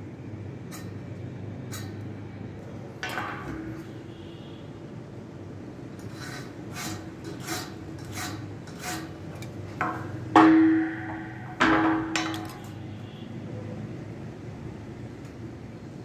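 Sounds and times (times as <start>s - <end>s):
metal box bar clanking: 3.0s - 4.0s, 9.8s - 12.8s
scriber scratching steel: 5.9s - 12.8s.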